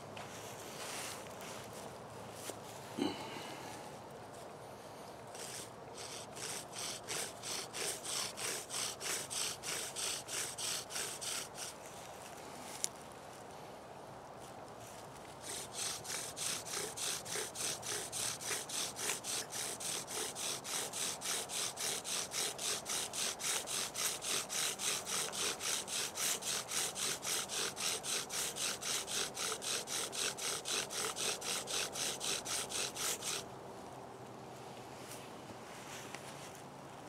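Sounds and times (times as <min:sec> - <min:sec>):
bow drill strokes grinding: 0:05.3 - 0:11.8, 0:15.4 - 0:33.4.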